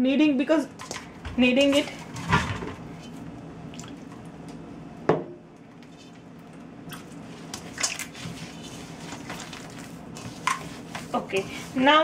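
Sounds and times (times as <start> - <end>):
hands kneading dough: 6.9 - 12.0.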